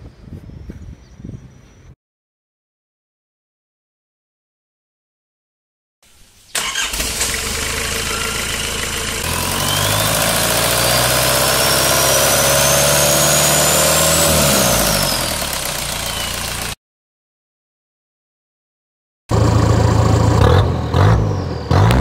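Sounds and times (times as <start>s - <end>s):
turbo whine: 6.5s - 16.8s
diesel engine revving: 6.6s - 16.8s, 19.3s - 22.0s.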